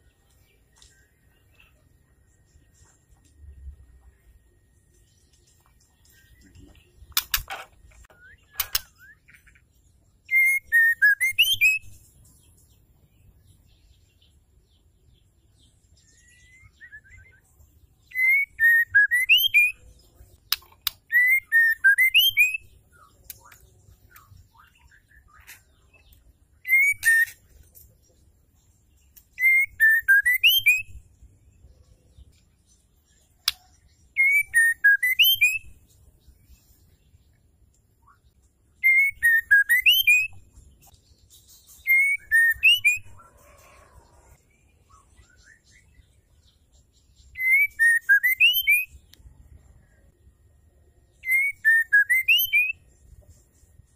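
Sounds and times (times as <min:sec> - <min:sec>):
sharp clicks: 0:07.1 - 0:08.9
bird whistled call: 0:10.3 - 0:11.9, 0:18.1 - 0:19.8, 0:26.6 - 0:27.4, 0:29.4 - 0:31.0, 0:34.2 - 0:35.7, 0:38.8 - 0:40.4, 0:41.8 - 0:43.2, 0:47.4 - 0:48.9, 0:51.2 - 0:52.8.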